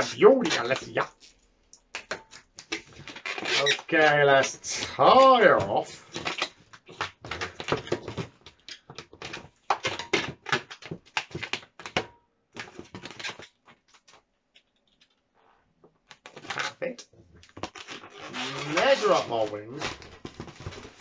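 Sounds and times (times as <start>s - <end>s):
rubber balloon squeaking: 0.0s - 1.4s, 2.7s - 8.9s, 16.2s - 16.9s, 17.6s - 21.0s.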